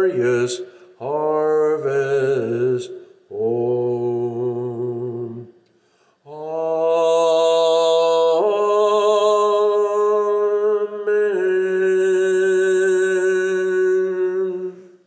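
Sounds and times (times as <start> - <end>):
man singing a cappella: 0.0 - 15.0.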